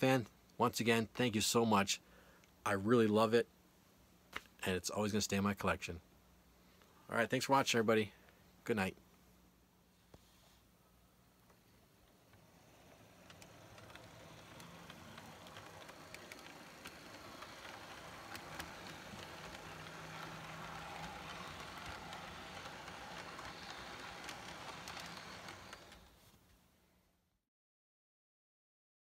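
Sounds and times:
light clicks of track: 11.4s - 26.2s
model train wheels rumbling: 11.9s - 26.2s
low motor hum: 12.0s - 26.2s.

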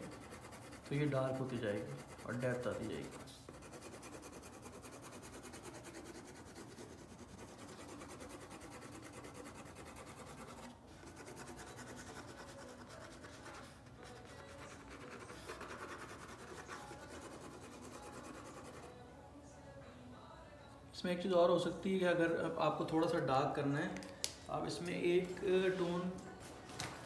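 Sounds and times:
pen scratching on paper: 0.0s - 18.9s.

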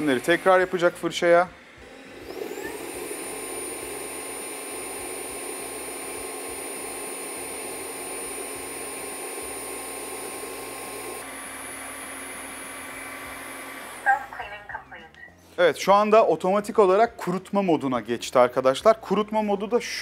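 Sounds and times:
vacuum motor whine: 0.0s - 14.4s.

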